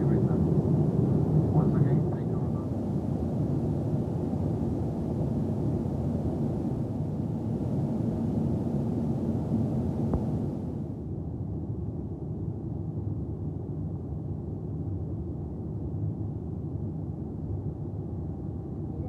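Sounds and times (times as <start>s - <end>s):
airplane cabin rumble: 0.0s - 11.4s.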